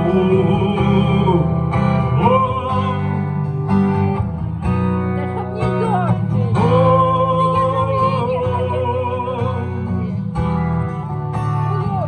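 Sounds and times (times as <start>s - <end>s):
person singing: 0.0s - 3.2s, 6.2s - 10.1s
acoustic guitar strumming: 0.0s - 12.0s.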